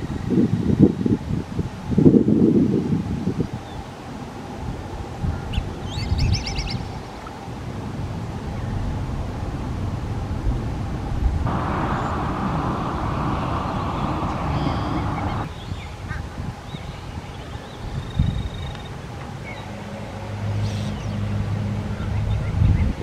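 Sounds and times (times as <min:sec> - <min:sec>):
wind rumbling on microphone: 0:00.0 - 0:23.0
steady hissing buzz: 0:07.0 - 0:15.5
bird trill: 0:13.6 - 0:16.0.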